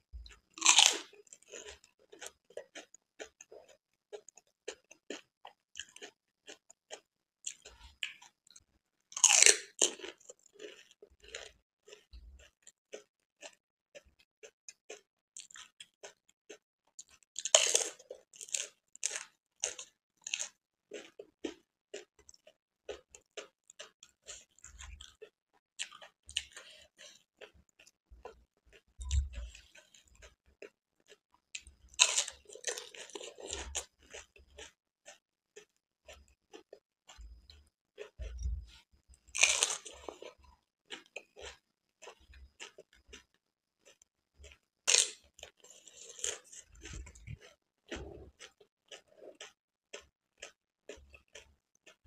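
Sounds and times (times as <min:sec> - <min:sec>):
wet chewing clicks: 0:39.3 - 0:52.0.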